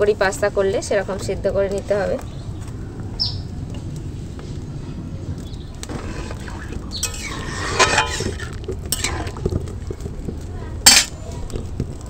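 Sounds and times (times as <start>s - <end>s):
pasta boiling in water: 5.1s - 12.0s
birds chirping and squawking: 5.4s - 9.3s
metal ladle knocking wok: 7.0s - 9.4s.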